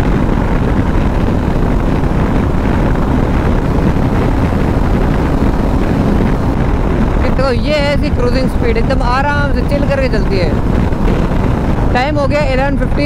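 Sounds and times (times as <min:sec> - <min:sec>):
motorcycle engine cruising: 0:00.0 - 0:13.0
wind rushing over microphone: 0:00.0 - 0:13.0.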